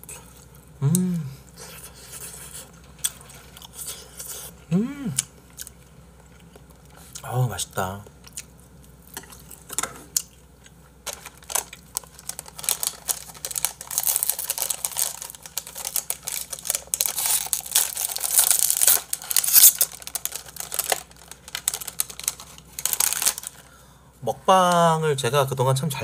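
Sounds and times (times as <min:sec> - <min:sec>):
plastic packaging crinkling: 0:11.0 - 0:23.8.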